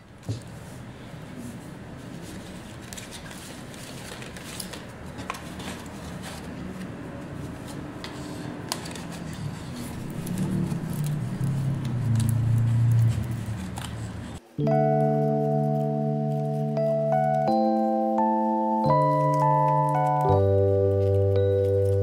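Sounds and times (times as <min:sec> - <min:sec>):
paper and card rustling: 0:00.2 - 0:14.4.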